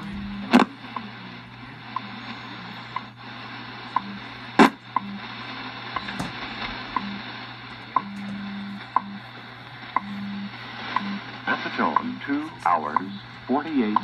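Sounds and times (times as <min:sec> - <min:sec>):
radio static hiss: 0:00.0 - 0:14.0
time signal ticks: 0:02.9 - 0:03.1, 0:03.9 - 0:05.3, 0:05.9 - 0:06.2, 0:06.9 - 0:07.2, 0:07.9 - 0:09.3, 0:09.9 - 0:10.3, 0:10.9 - 0:11.2, 0:11.8 - 0:14.0
low time code pulses: 0:07.9 - 0:14.0.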